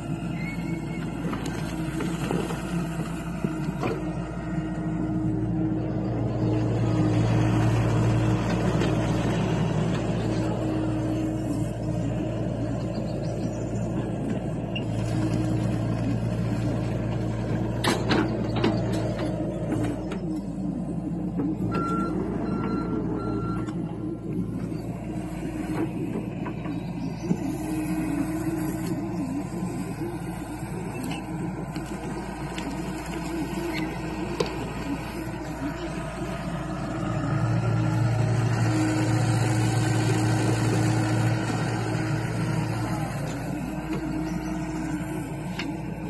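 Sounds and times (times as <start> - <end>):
excavator diesel engine: 0.0 - 46.0
travel alarm beeps: 21.7 - 23.8.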